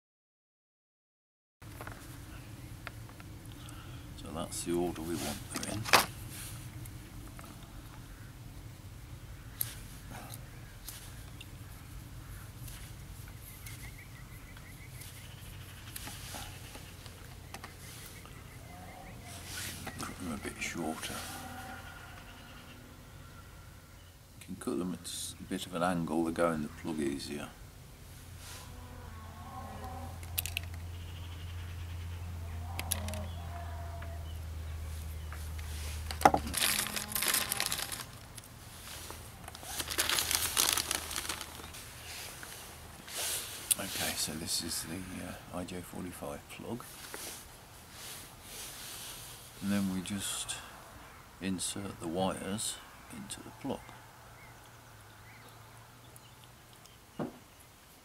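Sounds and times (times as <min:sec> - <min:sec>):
low outdoor rumble: 0:01.6 - 0:57.0
cable wires rustling and clicking: 0:30.2 - 0:30.8, 0:32.7 - 0:33.3, 0:35.3 - 0:42.6
plastic bag crinkling: 0:36.0 - 0:41.8.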